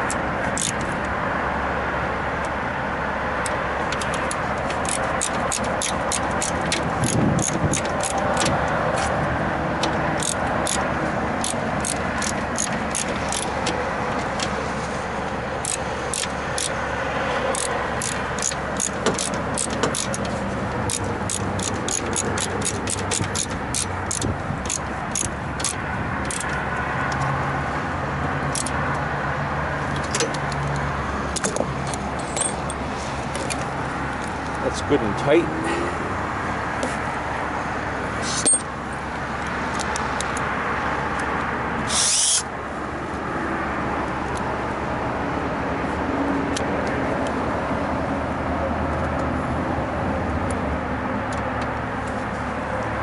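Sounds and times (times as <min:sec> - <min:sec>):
metallic clicks of hand tools: 0:00.0 - 0:00.9, 0:03.4 - 0:09.2, 0:09.8 - 0:13.8, 0:15.6 - 0:16.8, 0:17.5 - 0:27.3, 0:28.5 - 0:29.0.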